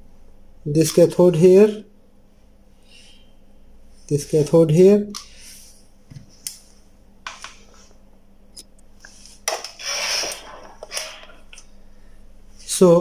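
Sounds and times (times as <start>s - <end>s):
faint steady hum: 0.0s - 13.0s
rustling scrape: 9.0s - 11.6s.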